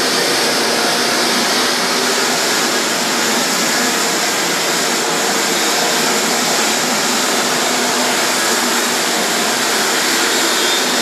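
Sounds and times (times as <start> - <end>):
floor buffer running: 0.0 - 11.0.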